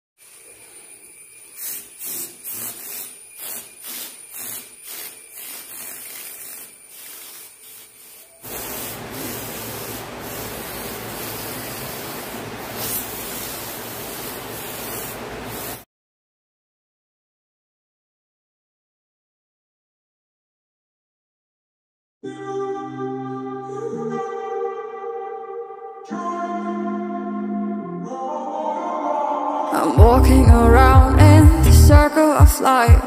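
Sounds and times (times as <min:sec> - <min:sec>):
airbrush spraying paint: 0:00.2 - 0:15.9.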